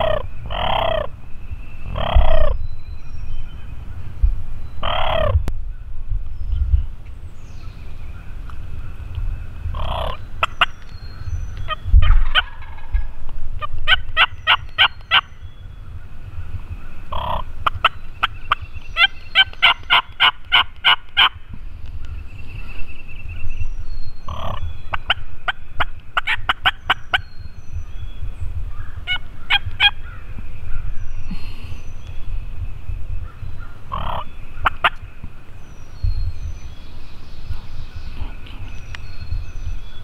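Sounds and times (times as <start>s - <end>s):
wild turkeys calling: 0.0s - 1.2s, 1.8s - 2.6s, 4.8s - 6.0s, 8.0s - 22.9s, 24.2s - 27.2s, 28.7s - 32.0s, 33.2s - 35.2s.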